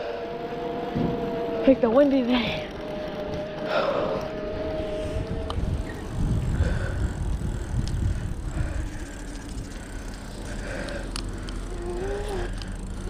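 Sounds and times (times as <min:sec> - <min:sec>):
wind buffeting microphone: 0:02.4 - 0:13.0.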